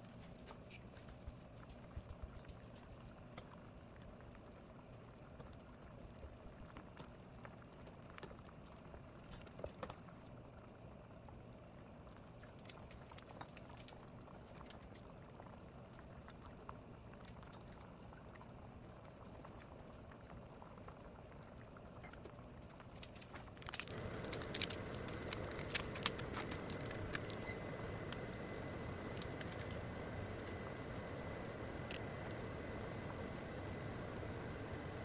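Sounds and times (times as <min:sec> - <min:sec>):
soup bubbling: 0:23.5 - 0:35.0.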